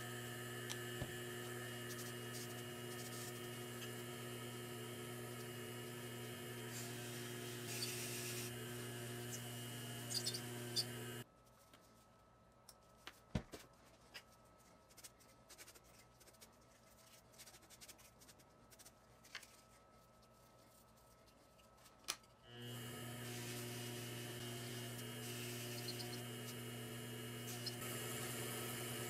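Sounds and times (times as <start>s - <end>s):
lathe motor humming: 0.0s - 11.2s, 22.5s - 29.0s
polishing compound scraping: 6.7s - 8.5s, 23.2s - 26.6s.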